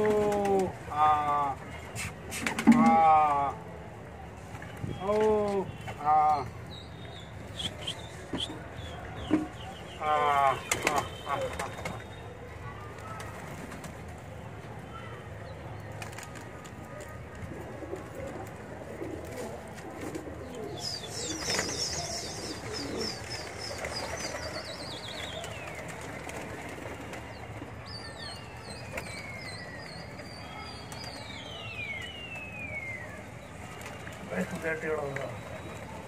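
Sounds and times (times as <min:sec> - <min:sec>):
high whistled calls: 0:07.1 - 0:08.7, 0:27.9 - 0:33.3
pigeons cooing: 0:17.6 - 0:26.3.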